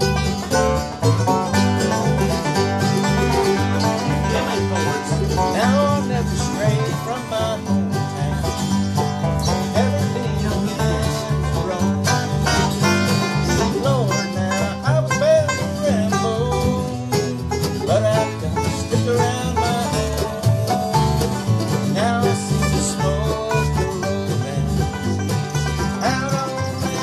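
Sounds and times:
sliding lead line: 0.0s - 15.2s
acoustic guitar rhythm: 0.0s - 27.0s
banjo picking: 0.0s - 27.0s.

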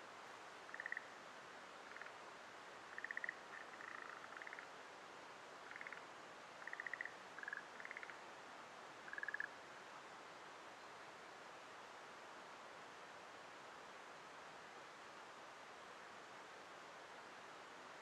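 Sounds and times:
faint steady hiss: 0.0s - 18.0s
frogs croaking: 0.7s - 1.2s, 1.8s - 4.7s, 5.6s - 8.2s, 9.0s - 9.6s.

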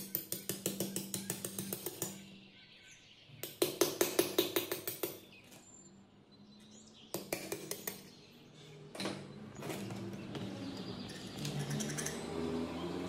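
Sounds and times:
hammer tapping on metal: 0.0s - 2.2s, 3.4s - 5.2s.

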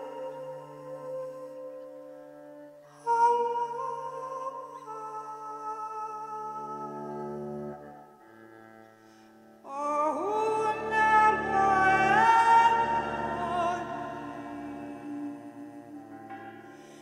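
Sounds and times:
woman singing operatically: 0.0s - 2.2s, 2.9s - 7.7s, 9.7s - 17.0s
soft low drone: 9.9s - 17.0s.

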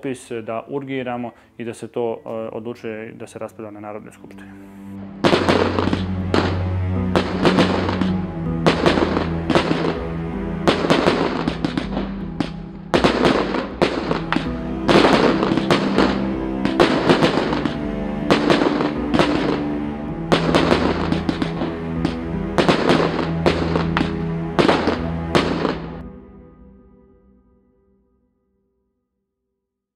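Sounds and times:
background music: 0.0s - 28.7s
fireworks bangs and crackles: 5.2s - 6.6s, 7.2s - 10.0s, 10.6s - 19.6s, 20.3s - 25.9s.

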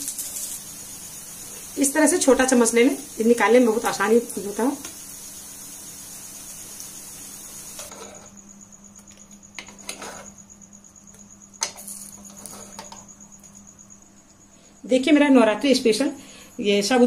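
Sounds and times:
oil sizzling in a frying pan: 0.0s - 8.3s.

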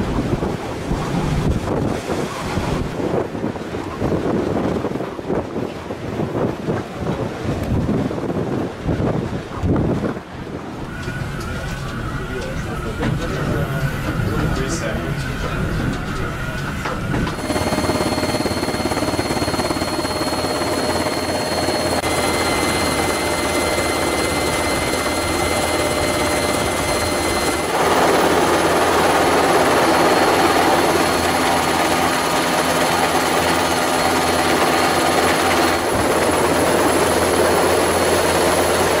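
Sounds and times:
helicopter engine and rotor noise: 10.0s - 39.0s.

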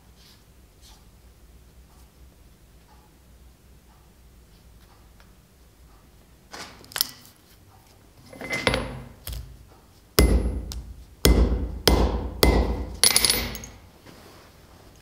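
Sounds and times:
anvil ringing: 10.2s - 10.7s, 11.3s - 13.8s
hammer striking leather on anvil: 10.2s - 13.8s.

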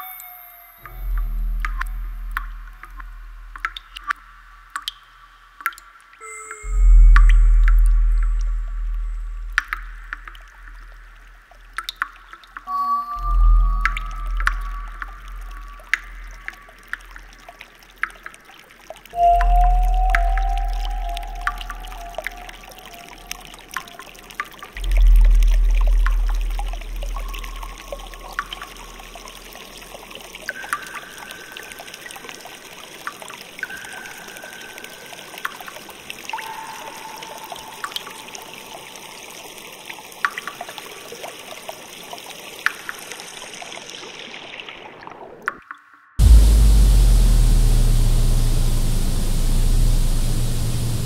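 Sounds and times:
water trickling: 0.0s - 51.0s
deep rumble: 6.7s - 10.0s, 24.8s - 29.2s, 46.2s - 51.0s.

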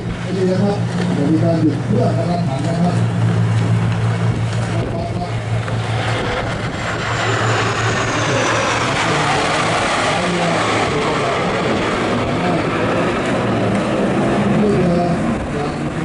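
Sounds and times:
boat engines droning: 0.0s - 16.0s
water rushing and spraying: 0.0s - 16.0s.

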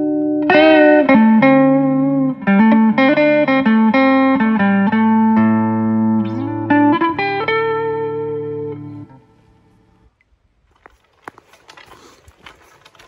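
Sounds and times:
plucked guitar melody: 0.0s - 10.0s.

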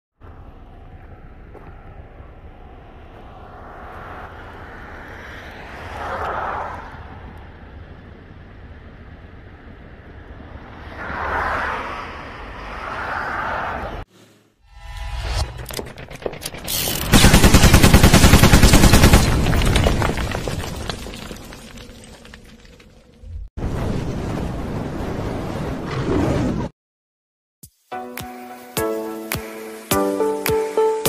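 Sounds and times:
steady low rumble: 0.2s - 5.8s
cars passing: 0.2s - 14.6s.

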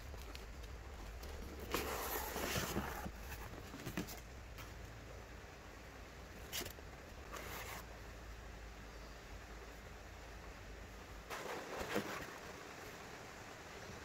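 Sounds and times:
rustling and scraping handling: 0.0s - 4.9s, 6.4s - 7.9s, 11.3s - 12.6s.

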